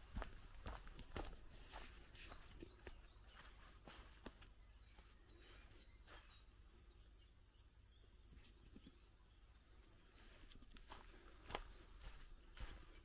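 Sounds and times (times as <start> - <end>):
soft footsteps on ground: 0.0 - 6.8, 9.6 - 13.0
faint bird chirps: 2.1 - 11.1.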